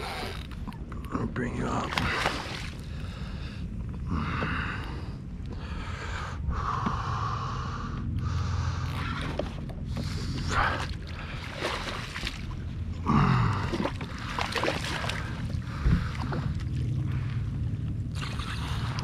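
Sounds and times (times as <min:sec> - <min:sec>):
water splashing and sloshing: 0:00.0 - 0:07.3, 0:08.0 - 0:19.0
fish thrashing at surface: 0:10.4 - 0:12.6, 0:13.6 - 0:16.6.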